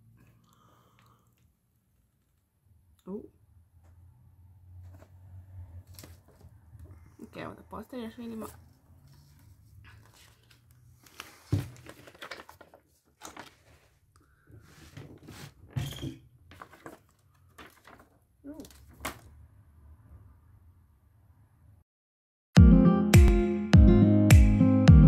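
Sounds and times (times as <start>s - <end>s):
paper rustling and crinkling: 5.8s - 6.6s, 8.4s - 15.7s, 16.5s - 19.3s.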